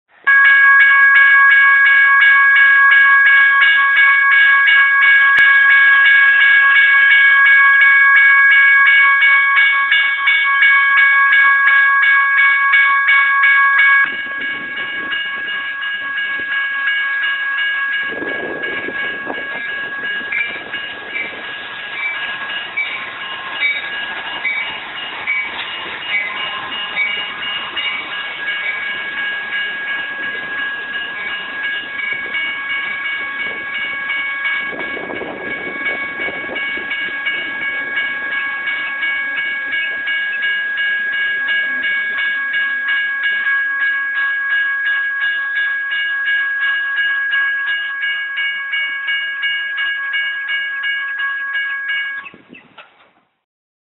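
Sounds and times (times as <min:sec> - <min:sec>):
crossing warning bells ringing: 0:00.1 - 0:52.6
train wheels rumbling over rails: 0:14.0 - 0:42.8.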